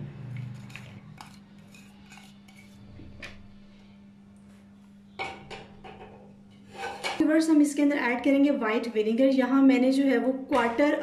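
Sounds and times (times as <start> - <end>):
onion scraped off plate: 6.6 - 7.2.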